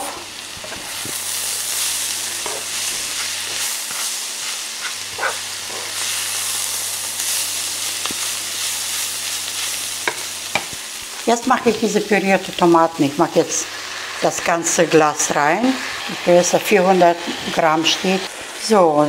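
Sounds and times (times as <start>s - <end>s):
vegetables sizzling in oil: 0.0s - 19.0s.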